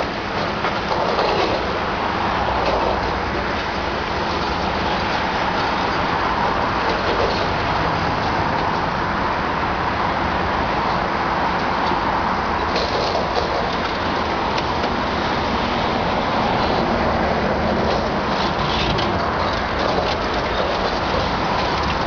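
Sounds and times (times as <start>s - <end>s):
excavator diesel engine and hydraulics: 0.0s - 22.0s.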